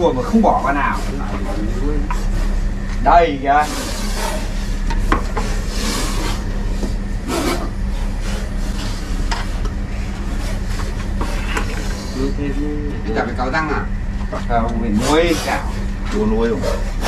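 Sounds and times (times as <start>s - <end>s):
steady low hum: 0.0s - 17.0s
snake dragged scraping: 3.3s - 12.6s.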